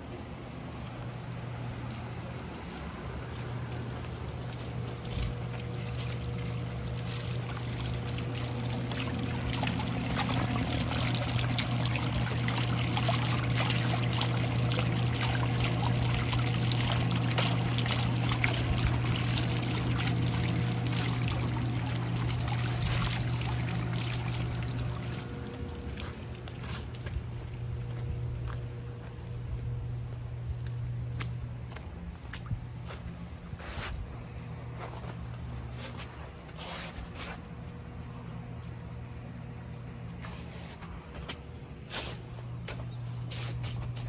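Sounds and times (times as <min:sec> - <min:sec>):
low hum: 0:00.0 - 0:44.0
water splashing from fountain: 0:01.6 - 0:27.4.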